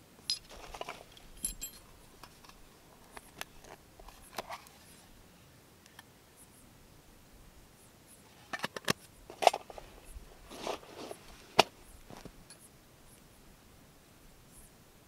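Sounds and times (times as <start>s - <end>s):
scraping rustle: 9.3s - 12.6s.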